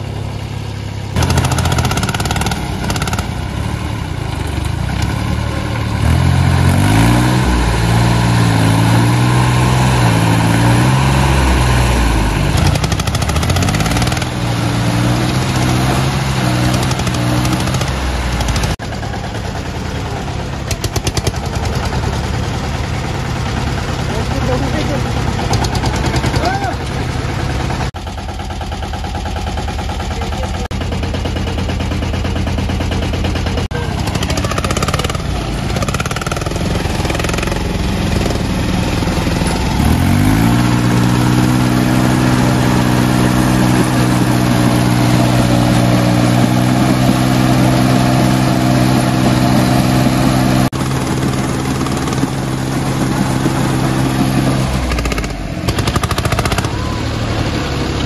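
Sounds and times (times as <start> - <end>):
diesel tractor engines chugging: 0.0 - 58.0
tractor engine revving under load: 0.0 - 58.0.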